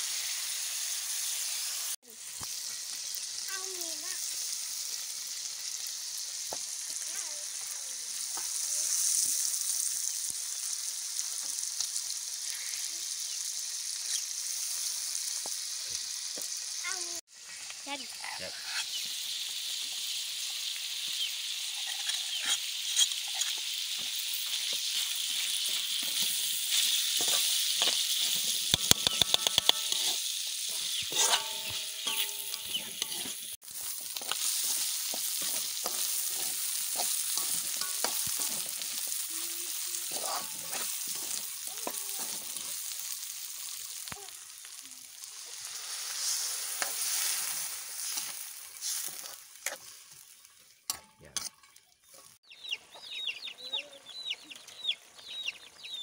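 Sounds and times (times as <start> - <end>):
meat sizzling in a wok: 0.0 - 56.0
metal ladle scraping a pan: 21.6 - 42.8, 45.6 - 50.0.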